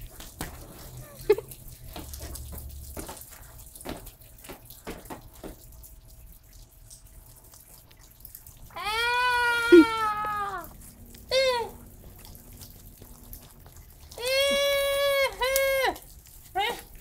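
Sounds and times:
rainwater dripping on pavement: 0.0 - 17.0
high drawn-out voice-like cry: 8.8 - 10.7, 11.3 - 11.8, 14.2 - 16.0.

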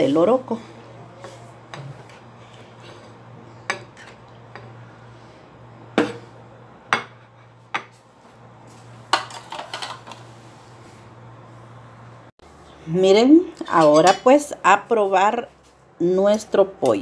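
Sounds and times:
cutlery clinking against pan: 9.1 - 10.2.

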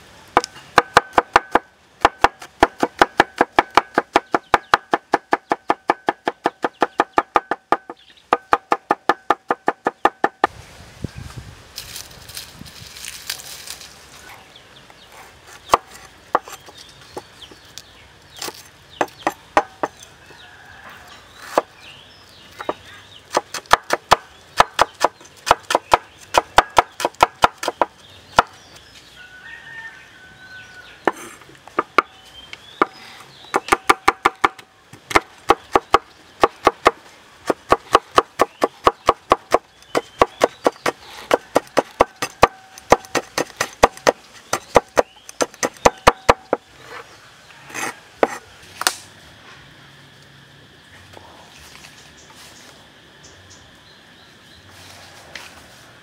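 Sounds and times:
cleaver chopping on wooden board: 0.4 - 10.5, 18.4 - 20.0, 22.6 - 28.6, 32.8 - 46.6, 47.8 - 49.0.

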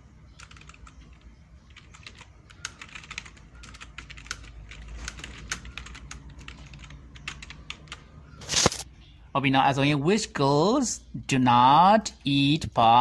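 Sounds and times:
keyboard typing clicks: 0.3 - 8.1.

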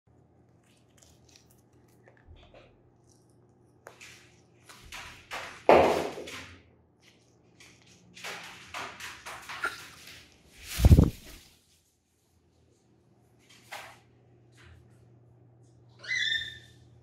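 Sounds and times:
parrot crunching corn: 0.1 - 5.6, 7.0 - 11.5
rustling: 9.6 - 12.2.

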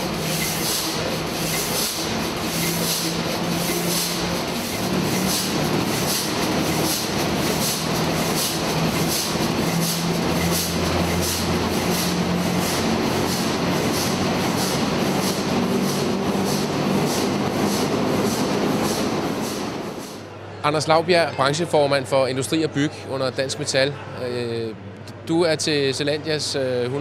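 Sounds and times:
diesel engine clattering: 0.0 - 20.2.

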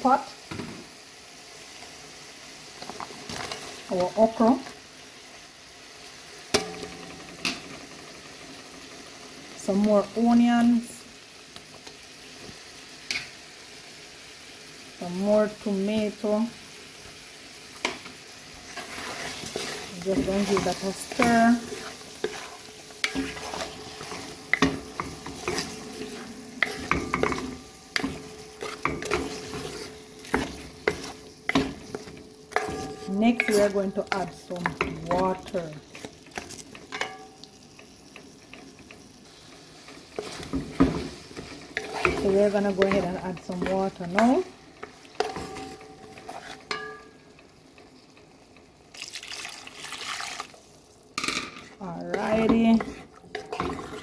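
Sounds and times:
food sizzling: 0.0 - 54.0
spoon scraping metal pot: 18.7 - 37.3, 40.2 - 44.4, 45.2 - 47.1, 51.4 - 54.0
water poured into pot: 48.9 - 50.7.

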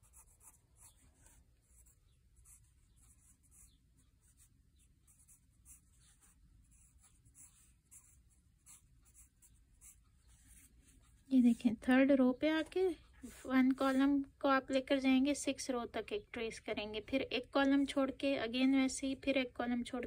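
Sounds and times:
pencil scratching on paper: 0.0 - 11.8, 13.1 - 14.2.

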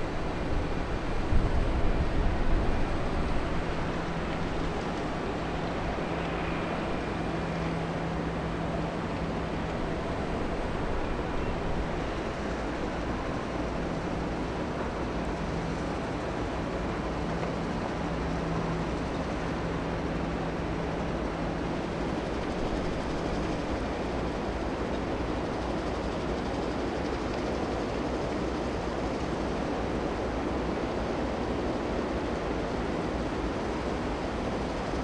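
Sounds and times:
low machinery hum: 0.0 - 35.0.

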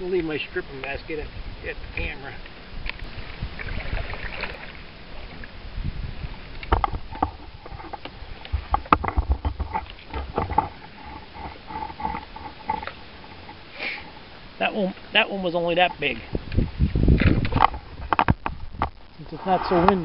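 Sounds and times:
water lapping: 2.8 - 15.0.

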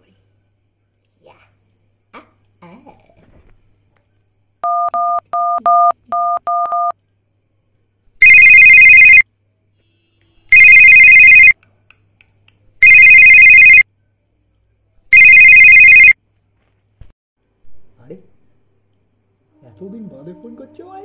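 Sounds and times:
phone keypad beeps: 4.6 - 6.9, 8.2 - 9.2, 10.5 - 11.5, 12.8 - 13.8, 15.2 - 16.2
phone ringing tone: 4.6 - 6.9, 8.2 - 9.2, 10.5 - 11.6, 12.8 - 13.8, 15.1 - 16.2.

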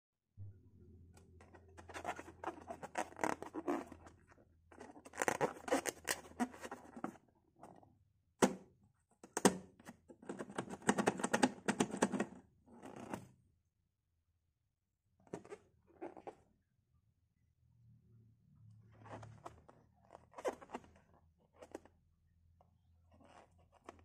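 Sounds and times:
fingers rubbing rubber balloon: 1.8 - 7.0.

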